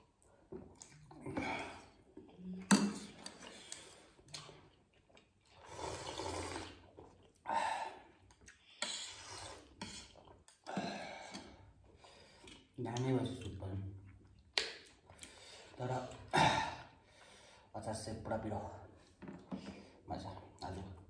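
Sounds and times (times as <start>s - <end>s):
chewing: 0.2s - 16.3s
slurping soup from a spoon: 2.9s - 12.8s.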